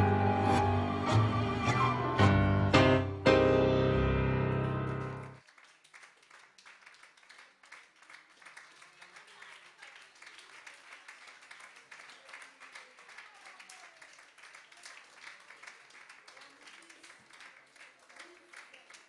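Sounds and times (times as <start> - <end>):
faint audience applause: 4.5 - 19.0.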